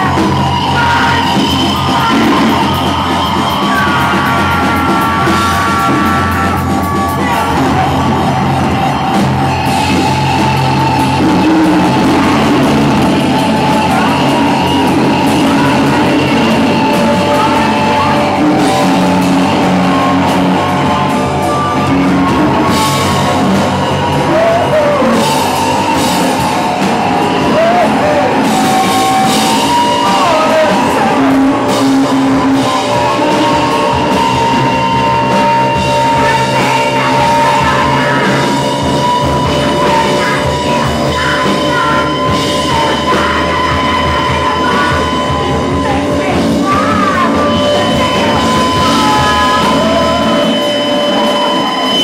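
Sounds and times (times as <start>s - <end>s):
person yelling vocals: 0.0s - 6.6s
high squealing tones: 0.0s - 52.0s
noise rock band: 0.0s - 52.0s.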